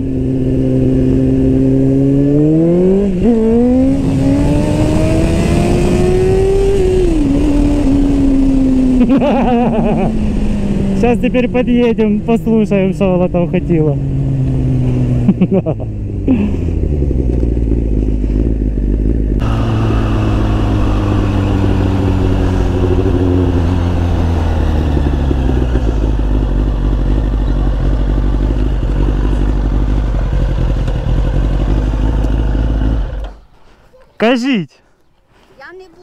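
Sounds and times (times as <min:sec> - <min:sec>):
motorcycle engine running: 0:10.0 - 0:33.4.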